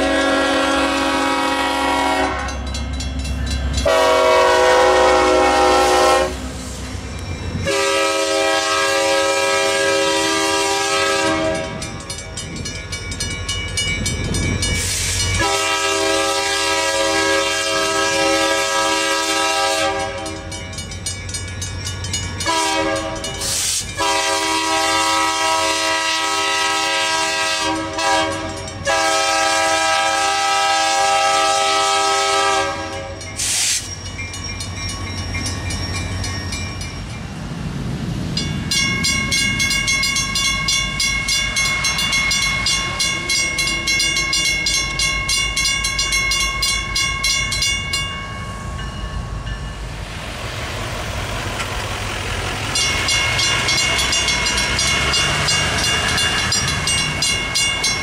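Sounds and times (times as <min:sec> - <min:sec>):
locomotive horn blowing: 0:00.0 - 0:02.6, 0:03.8 - 0:06.5, 0:07.6 - 0:11.8, 0:15.4 - 0:20.5, 0:22.4 - 0:23.4, 0:24.0 - 0:33.8
railroad crossing bell ringing: 0:00.0 - 0:58.0.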